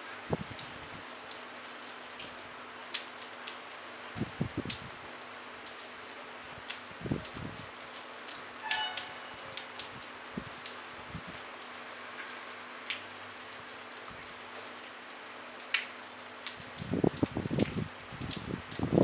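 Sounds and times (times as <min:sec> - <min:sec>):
light rain falling: 0:00.0 - 0:19.0
short high-pitched note: 0:08.6 - 0:09.4.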